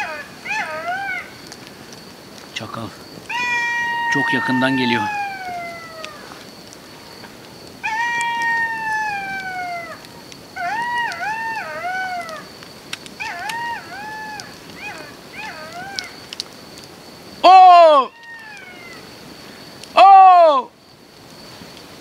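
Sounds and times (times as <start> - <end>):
jackal howling: 0.0 - 1.5, 3.2 - 6.4, 7.8 - 12.5, 13.2 - 16.2, 17.4 - 19.1.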